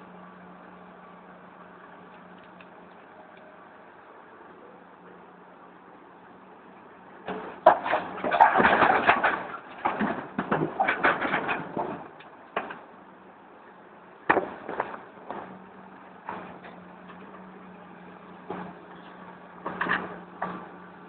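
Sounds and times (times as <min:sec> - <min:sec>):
diesel engine humming: 0:00.0 - 0:21.0
rocks clattering into steel truck bed: 0:07.3 - 0:12.9, 0:14.2 - 0:15.6, 0:16.2 - 0:17.2, 0:19.6 - 0:20.8.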